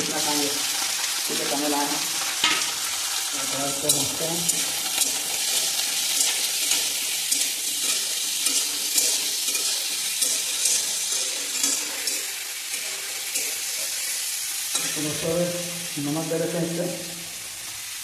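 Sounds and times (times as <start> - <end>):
chicken sizzling in hot oil: 0.0 - 18.0
spatula scraping a pan: 2.3 - 15.6.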